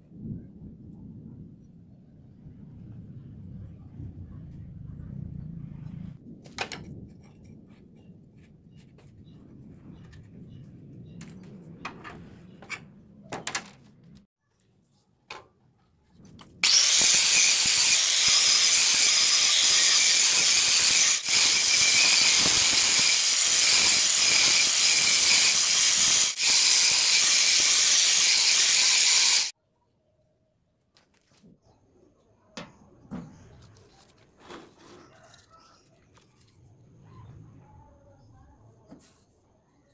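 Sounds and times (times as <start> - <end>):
angle grinder grinding steel: 16.6 - 29.5.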